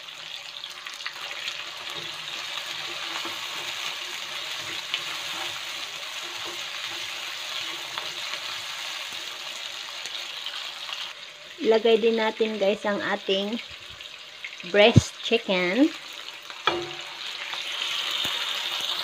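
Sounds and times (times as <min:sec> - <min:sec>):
vegetables sizzling in hot oil: 0:00.0 - 0:19.0
spatula scraping and tapping pan: 0:01.8 - 0:08.5, 0:16.6 - 0:17.2
sharp knock: 0:16.7 - 0:17.1.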